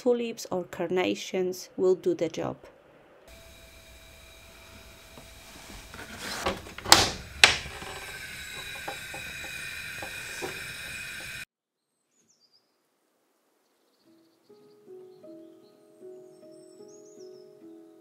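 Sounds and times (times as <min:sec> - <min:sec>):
oven humming: 0:03.3 - 0:11.5
oven door clunks: 0:04.7 - 0:10.7.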